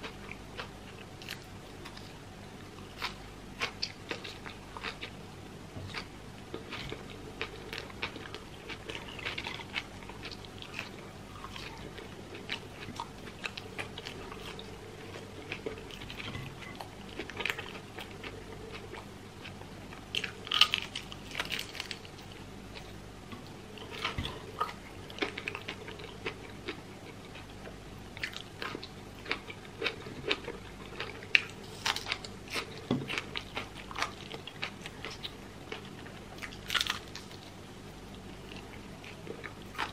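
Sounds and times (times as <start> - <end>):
chewing: 5.9 - 23.0, 23.8 - 27.5, 28.2 - 37.5, 38.1 - 39.9
crispy fried chicken crunching: 20.2 - 22.9, 28.2 - 37.5.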